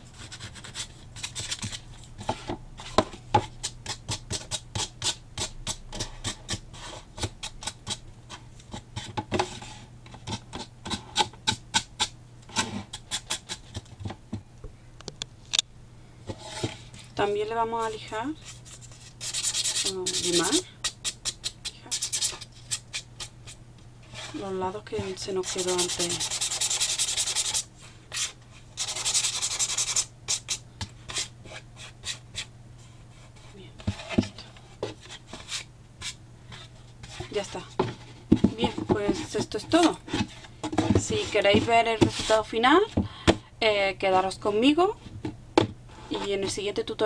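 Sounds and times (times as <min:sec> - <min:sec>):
sandpaper scratching cardboard: 0:18.8 - 0:23.3, 0:25.4 - 0:32.5.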